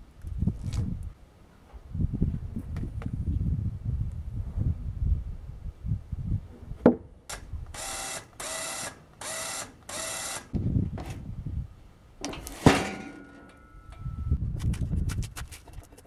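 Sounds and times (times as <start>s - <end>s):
log rumbling and knocking on steel: 6.8s - 7.1s, 12.2s - 13.7s.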